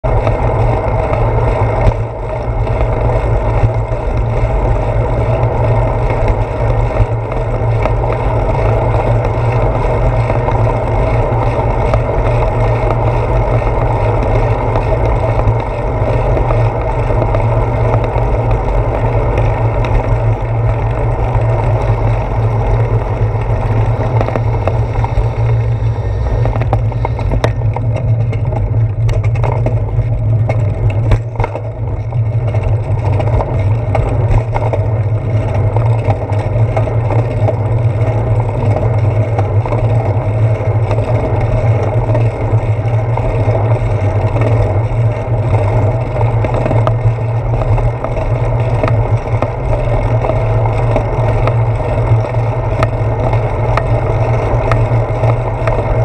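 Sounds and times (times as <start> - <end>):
bicycle knocks from bumps: 26.4 - 56.0.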